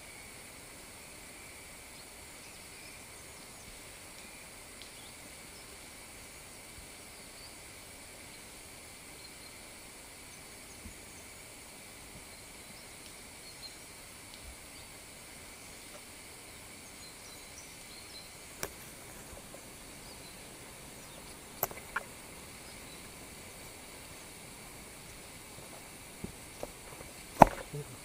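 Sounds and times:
faint chirps: 0.0s - 28.0s.

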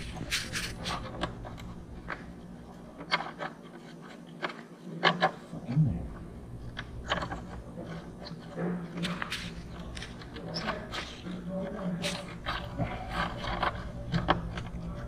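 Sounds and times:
light clicks and scrapes of hand: 0.0s - 5.5s, 6.8s - 15.0s
low background hum: 0.0s - 15.0s.

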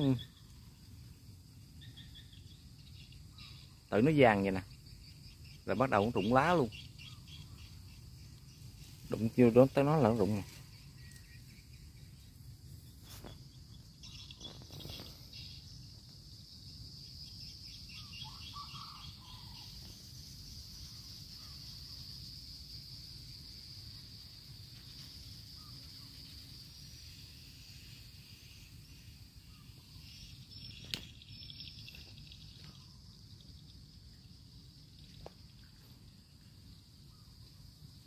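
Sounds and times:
insects buzzing: 0.0s - 38.0s.

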